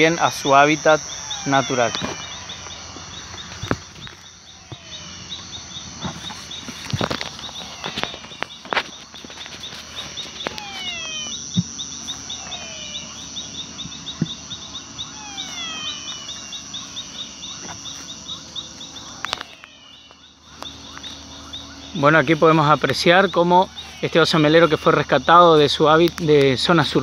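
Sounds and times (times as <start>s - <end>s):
descending whistled calls: 0.0s - 27.0s
insect trill: 0.0s - 27.0s
pulsed insect chirping: 0.0s - 27.0s
handling rustles: 6.0s - 11.2s
sharp clicks: 19.2s - 21.2s.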